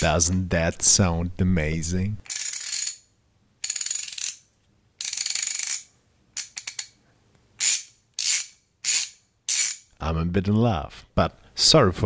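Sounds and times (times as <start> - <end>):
ratchet clicking: 2.2 - 7.0, 7.6 - 9.9.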